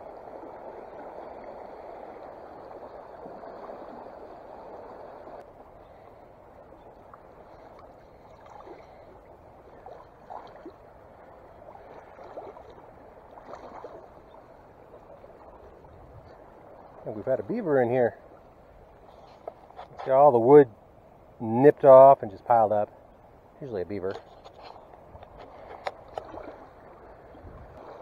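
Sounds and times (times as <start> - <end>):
water gurgles: 0.0 - 6.0, 6.6 - 19.0, 25.6 - 28.0
creek water rushing: 0.0 - 21.4, 24.5 - 28.0.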